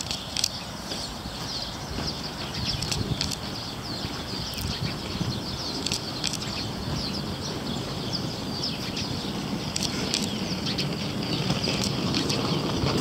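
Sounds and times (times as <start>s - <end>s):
sharp clicks: 0.0s - 0.6s, 2.7s - 3.5s, 4.5s - 4.8s, 5.8s - 6.6s, 9.7s - 10.4s, 11.5s - 13.0s
songbirds chirping: 0.0s - 13.0s.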